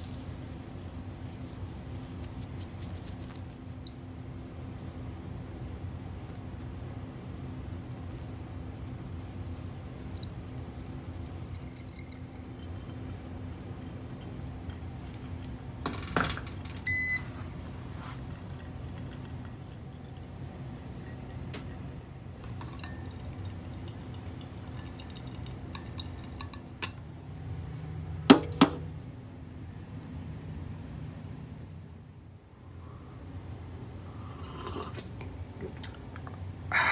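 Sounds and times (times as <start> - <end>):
steady low hum: 0.0 - 36.9
coffee trickling into carafe: 6.3 - 27.0.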